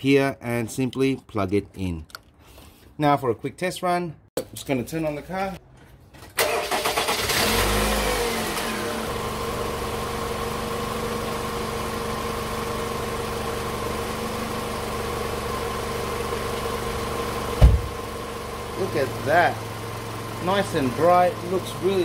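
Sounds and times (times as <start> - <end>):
car engine starting and idling: 6.3 - 22.0
short thump: 17.6 - 18.0.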